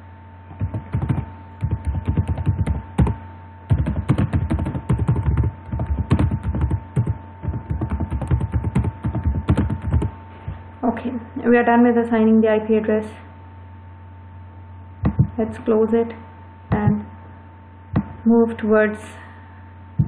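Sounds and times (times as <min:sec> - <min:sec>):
electrical hum: 0:00.0 - 0:20.0
keyboard typing: 0:00.5 - 0:10.1, 0:15.0 - 0:15.4, 0:16.7 - 0:17.0.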